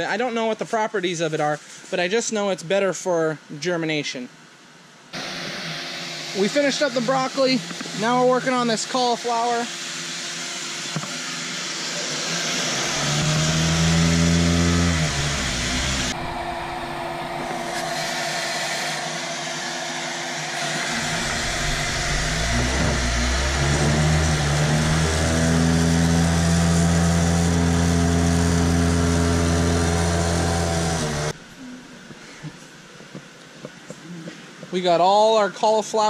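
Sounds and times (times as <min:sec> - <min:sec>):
vacuum motor humming and hissing: 0:05.2 - 0:31.4.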